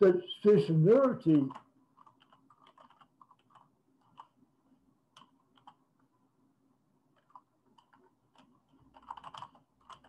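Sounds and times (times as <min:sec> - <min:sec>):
faint keyboard keystrokes: 0:01.5 - 0:04.4, 0:05.1 - 0:05.8, 0:07.1 - 0:10.0.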